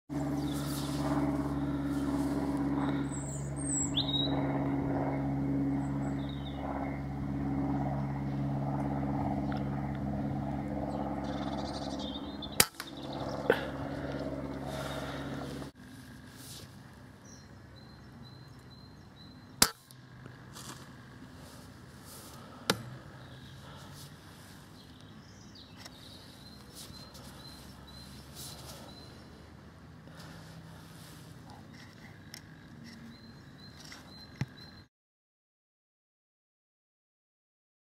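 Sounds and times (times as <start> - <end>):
steady hum: 0.1 - 34.5
bird chirps: 3.0 - 4.4, 10.9 - 13.5, 17.2 - 19.6, 24.8 - 29.4, 31.5 - 34.9.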